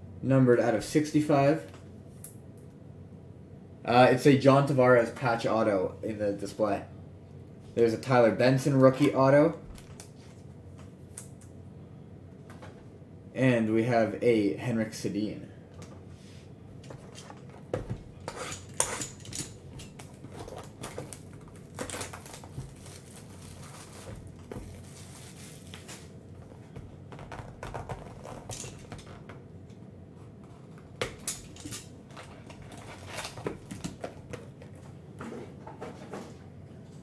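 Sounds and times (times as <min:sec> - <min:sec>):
plastic shrink-wrap crinkling: 0:19.9 - 0:26.2, 0:32.2 - 0:34.3.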